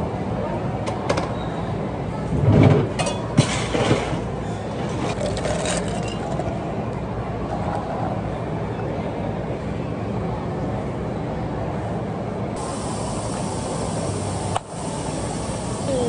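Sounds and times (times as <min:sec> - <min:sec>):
low mechanical hum: 0:00.0 - 0:16.0
ice clattering into a cup: 0:05.0 - 0:06.6.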